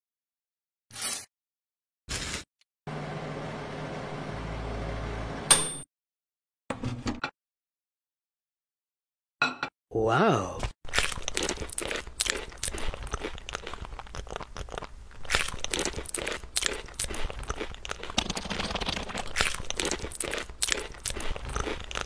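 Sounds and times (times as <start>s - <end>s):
crunching and chewing: 10.8s - 22.0s.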